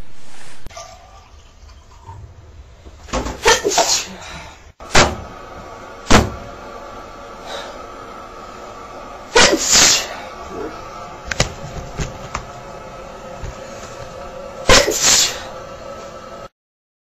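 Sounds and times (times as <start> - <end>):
person sneezing: 3.4 - 4.6, 9.3 - 10.7, 14.7 - 15.5
faint steady hum: 4.0 - 16.5.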